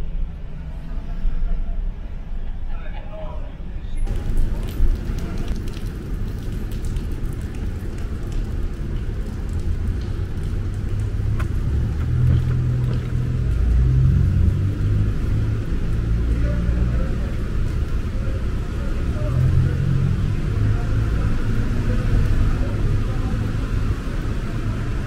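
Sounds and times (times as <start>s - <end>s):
car rumble on wet street: 4.0s - 25.0s.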